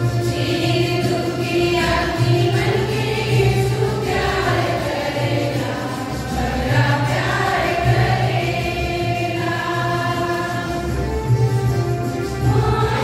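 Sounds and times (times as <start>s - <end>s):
choir singing a hymn: 0.0s - 13.0s.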